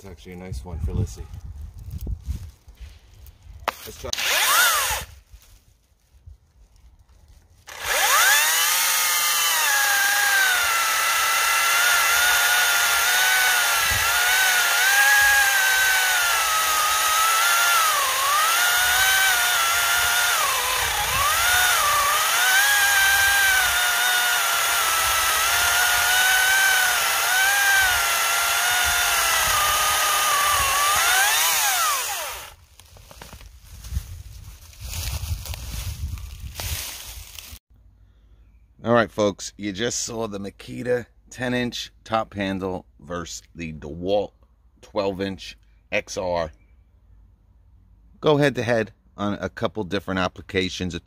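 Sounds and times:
chainsaw cutting log: 3.7 - 5.1, 7.6 - 33.4.

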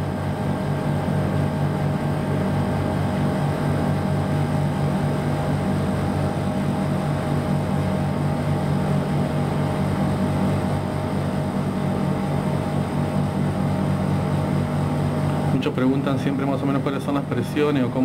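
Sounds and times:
air conditioner compressor and fan hum: 0.0 - 18.0.

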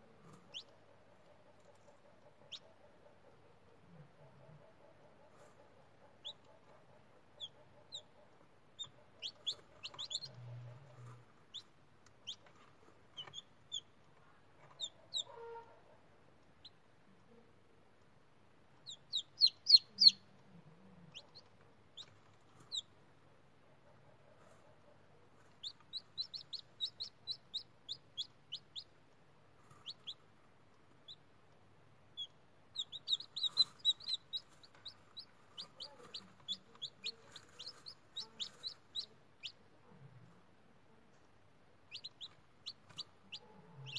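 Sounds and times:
chicks peeping: 0.0 - 17.4, 18.6 - 23.2, 23.8 - 40.3, 41.8 - 43.9.

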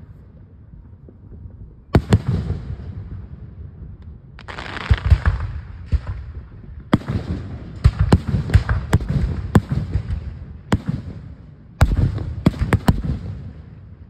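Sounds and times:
low rumble and crackle: 0.0 - 14.0
fireworks bursting with bangs: 1.9 - 3.3, 4.4 - 14.0.

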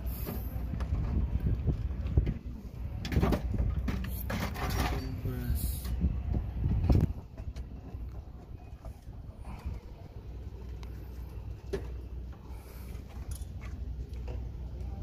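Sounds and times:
steady low rumble: 0.0 - 15.0
metal on metal clicks and scrapes: 3.1 - 6.0.

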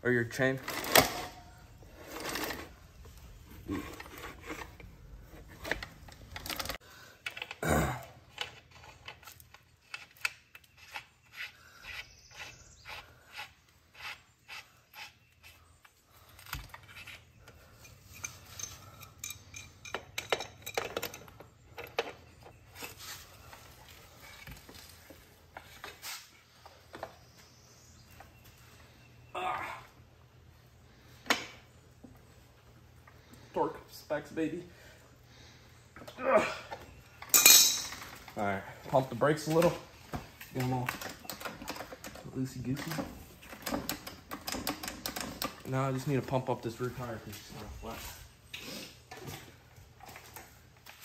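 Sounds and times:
metal tools clinking and scraping: 0.4 - 2.8, 8.3 - 12.5, 16.6 - 26.4, 37.1 - 38.4.

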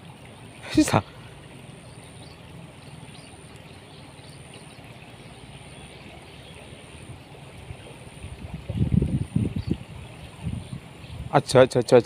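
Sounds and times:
river running: 0.0 - 12.0.

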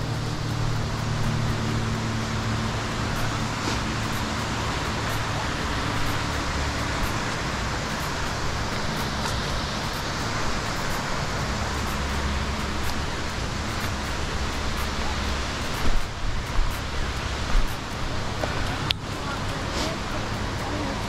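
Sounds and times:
falling water rushing: 0.0 - 21.0.

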